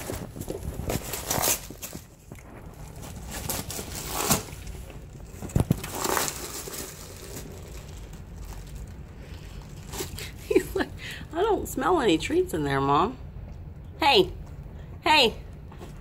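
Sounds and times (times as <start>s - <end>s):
dog ripping cardboard: 0.0s - 8.1s.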